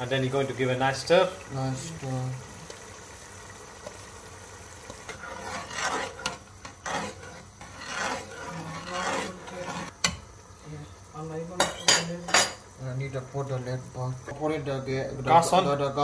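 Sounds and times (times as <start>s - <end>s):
metal ladle scraping a pot: 4.8s - 10.0s.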